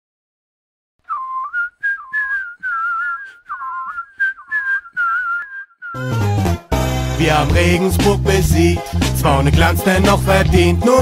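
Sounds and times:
person whistling a bouncy tune: 0:01.1 - 0:06.3.

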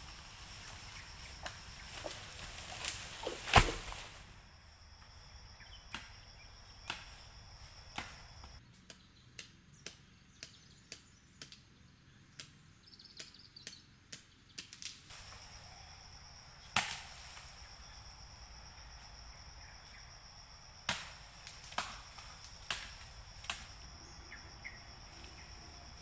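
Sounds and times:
insects shrilling: 0:00.0 - 0:08.6, 0:14.6 - 0:26.0
blade chopping bamboo: 0:01.4 - 0:04.1.

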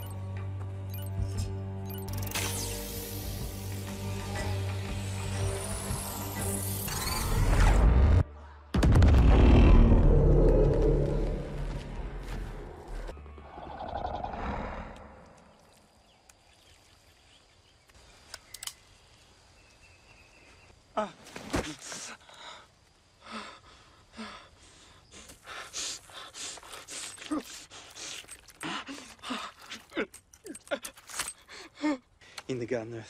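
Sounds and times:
low rumble: 0:07.7 - 0:13.1
gasps and grunts of struggle: 0:23.2 - 0:32.4.

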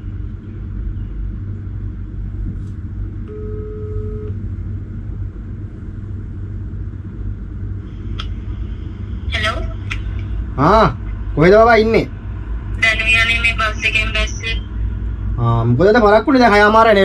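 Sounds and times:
steady low rumble: 0:00.0 - 0:17.0
phone ringing tone: 0:03.3 - 0:04.3.

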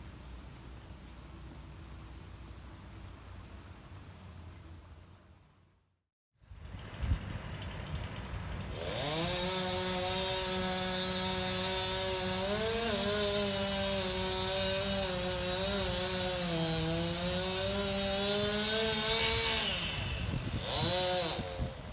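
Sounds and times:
chainsaw engine revving: 0:07.5 - 0:21.9.

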